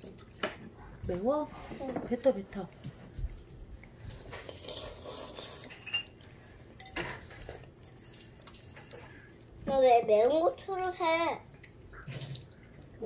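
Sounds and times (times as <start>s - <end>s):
child slurping noodles: 4.3s - 5.8s.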